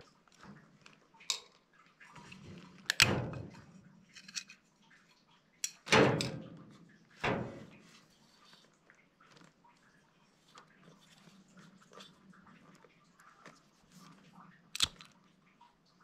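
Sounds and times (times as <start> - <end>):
metal clunks on hard surface: 5.9 - 6.6, 7.2 - 7.8.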